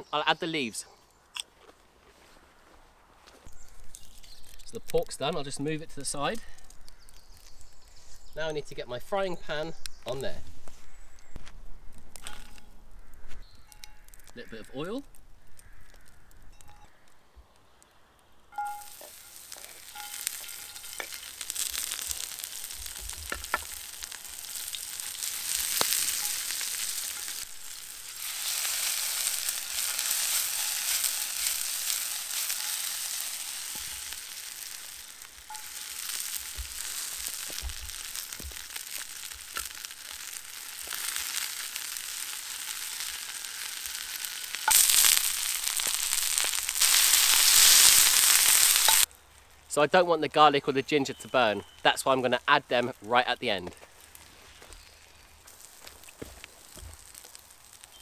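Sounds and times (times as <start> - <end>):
vegetables sizzling in oil: 3.4 - 8.5, 18.5 - 49.1, 53.5 - 58.0.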